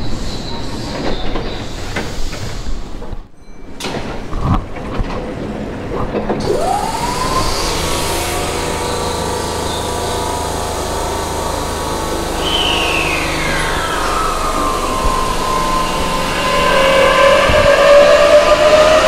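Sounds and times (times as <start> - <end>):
train machinery humming: 0.0 - 19.0
electric train whine: 4.8 - 19.0
higher falling whine: 6.4 - 19.0.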